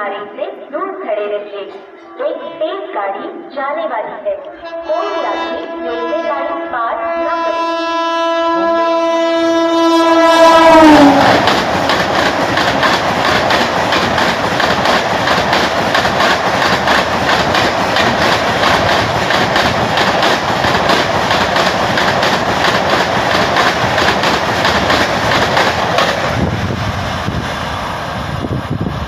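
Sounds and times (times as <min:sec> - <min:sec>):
low train rumble: 0:04.5 - 0:29.0
train wheel and air rush: 0:10.6 - 0:29.0
wheels clacking over rail joints: 0:10.9 - 0:26.4.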